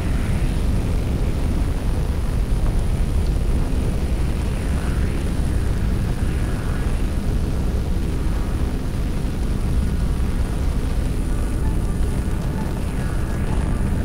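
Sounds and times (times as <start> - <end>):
low rumble of large engines: 0.0 - 14.0.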